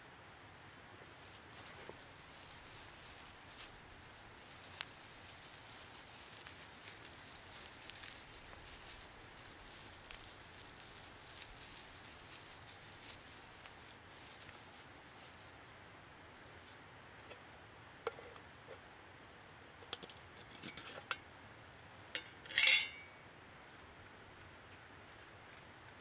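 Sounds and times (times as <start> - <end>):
dry grass crackling and rustling: 0.0 - 17.4.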